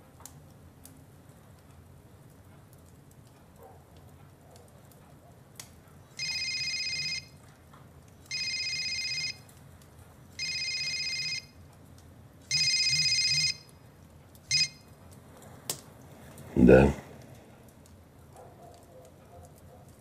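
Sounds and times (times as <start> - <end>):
mobile phone ringtone trills: 6.2 - 7.3, 8.3 - 9.4, 10.4 - 11.5, 12.5 - 13.6, 14.5 - 14.8.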